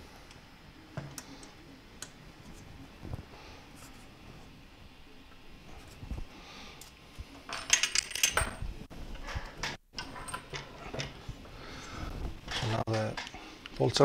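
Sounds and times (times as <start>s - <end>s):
metallic clinks and rattles: 7.5s - 8.7s.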